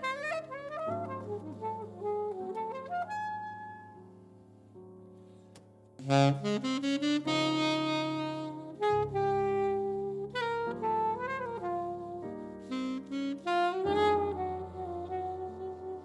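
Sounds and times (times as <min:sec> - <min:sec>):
alto saxophone ballad melody: 0:00.0 - 0:04.3, 0:06.0 - 0:16.0
piano chords: 0:00.0 - 0:16.0.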